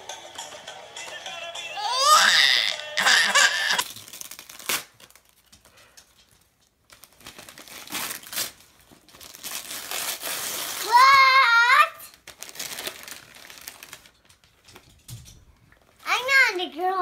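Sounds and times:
child squealing laugh: 1.8s - 3.8s
wrapping paper crinkling and tearing: 2.2s - 14.8s.

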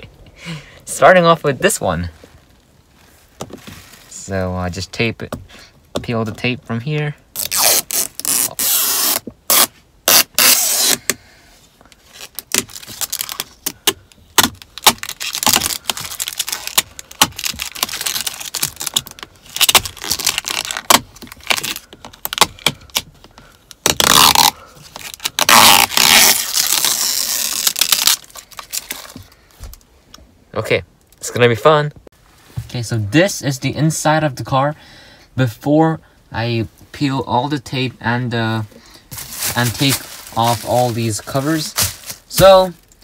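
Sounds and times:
tape peeling with crackling rips: 7.3s - 11.2s, 11.8s - 29.8s.

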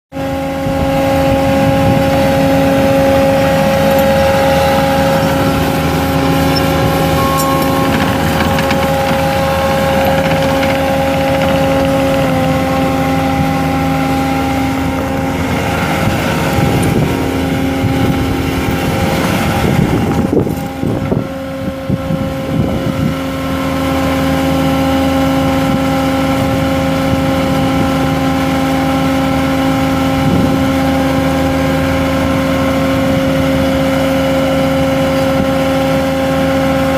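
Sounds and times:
diesel engine running: 0.2s - 27.1s
steady whine: 1.7s - 19.0s.

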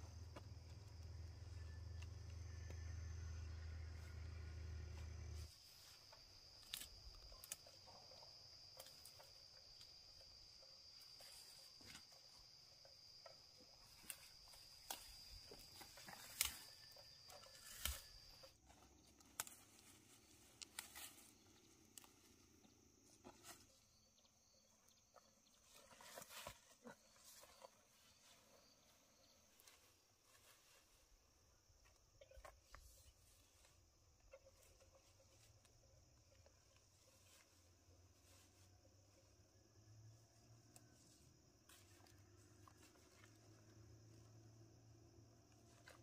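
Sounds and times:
low hum: 0.0s - 5.5s
insect trilling: 5.6s - 18.6s.

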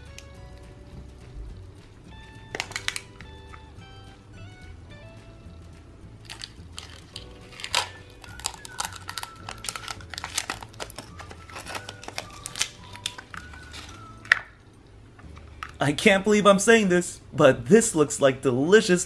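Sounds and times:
cellophane crinkling: 6.2s - 14.4s.

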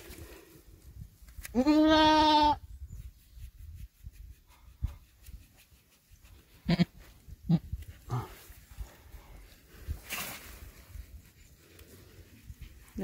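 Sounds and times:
goat bleating: 1.5s - 2.6s, 6.6s - 7.7s.

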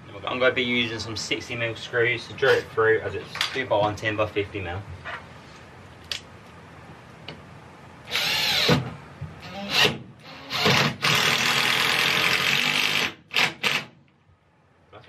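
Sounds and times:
cordless drill driving screws: 8.1s - 14.0s.

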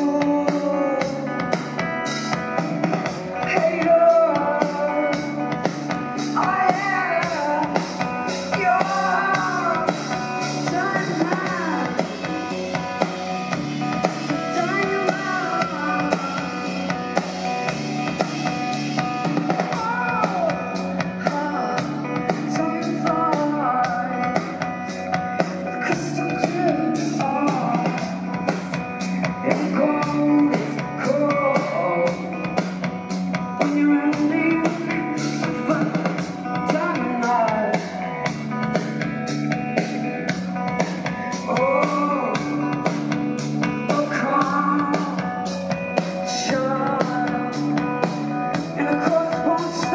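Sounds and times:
bass and guitar: 0.0s - 49.9s
drum kit beat: 0.0s - 49.9s
woman singing lead vocal: 0.0s - 49.9s.

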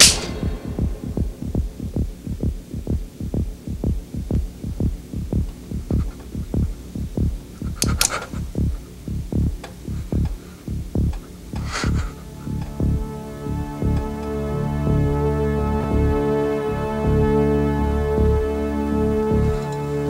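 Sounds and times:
heartbeat sound effect: 0.0s - 15.2s
sharp clicks: 7.7s - 8.4s.

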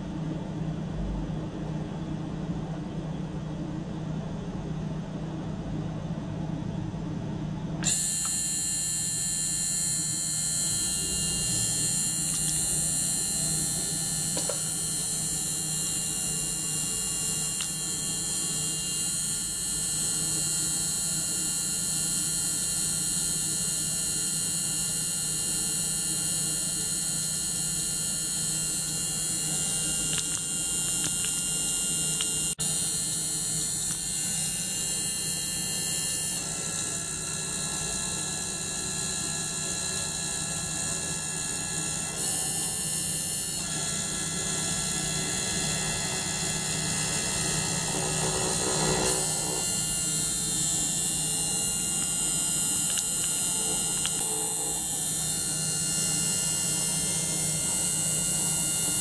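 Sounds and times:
steady low hum: 0.0s - 18.6s, 40.0s - 57.8s
ultrasonic cleaner hiss and whine: 7.8s - 18.7s, 40.9s - 59.0s.

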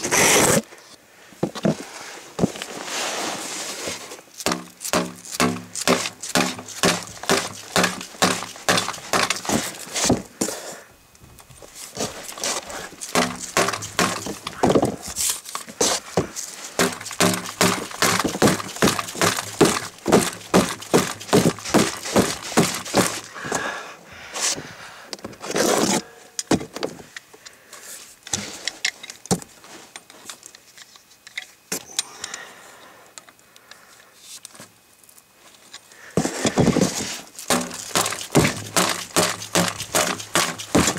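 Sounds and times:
tape crackling as pulled: 4.3s - 10.0s.

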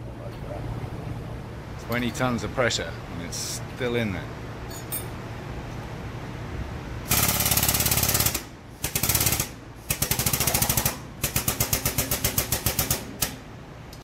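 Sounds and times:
pneumatic air hammer rattling: 7.1s - 13.4s.

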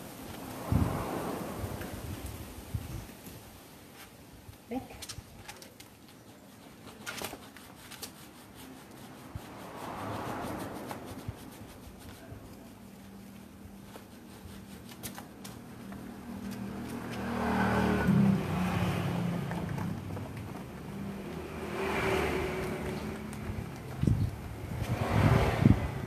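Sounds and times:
vehicle engine low hum: 15.5s - 26.0s.

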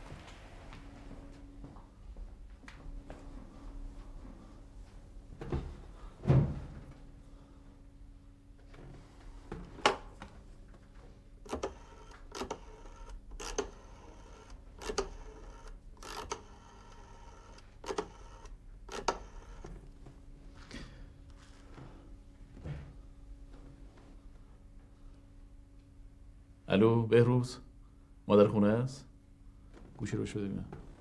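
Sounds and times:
thump: 5.5s - 6.8s.

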